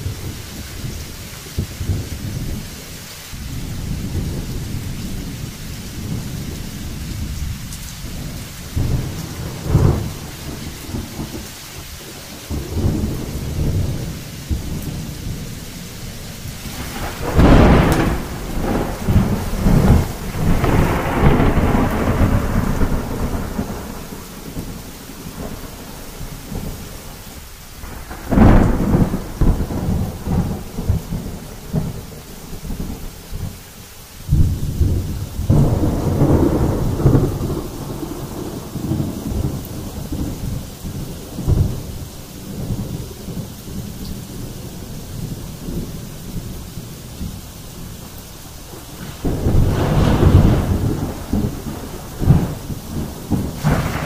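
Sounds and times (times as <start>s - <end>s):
thunder rumbling: 0.0s - 33.6s, 34.2s - 54.0s
steady rain: 0.0s - 54.0s
thunder cracks: 8.2s - 11.4s, 16.5s - 26.8s, 27.8s - 33.1s, 34.3s - 42.0s, 48.7s - 54.0s.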